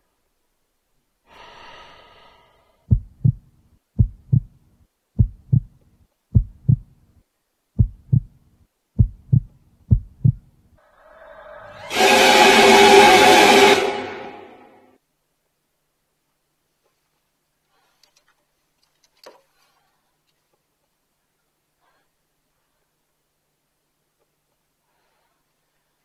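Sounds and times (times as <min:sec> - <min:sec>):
breath: 0:01.2 - 0:02.9, 0:17.7 - 0:18.3, 0:19.4 - 0:20.2, 0:21.8 - 0:23.0, 0:24.8 - 0:26.0
heartbeat thumps: 0:02.9 - 0:07.1, 0:07.8 - 0:10.6.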